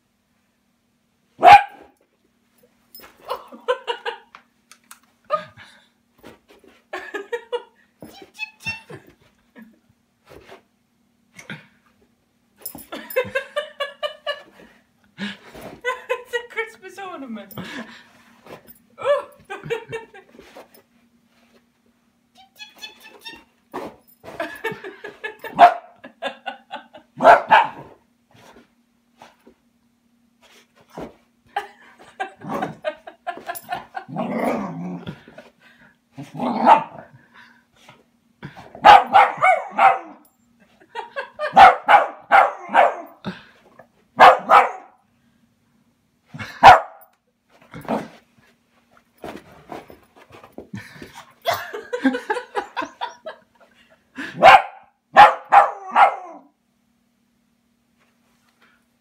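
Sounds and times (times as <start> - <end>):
dog barking: 1.4 - 1.9, 25.6 - 26.0, 27.2 - 27.8, 36.6 - 37.0, 38.8 - 40.2, 41.5 - 43.1, 44.2 - 45.0, 46.6 - 47.0, 54.4 - 56.4.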